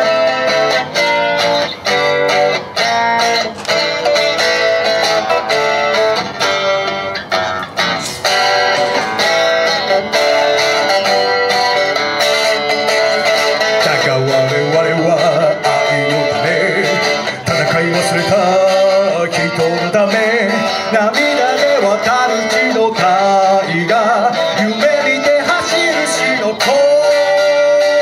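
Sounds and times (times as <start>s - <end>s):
electric guitar: 0.0s - 28.0s
man singing into a microphone: 13.4s - 28.0s.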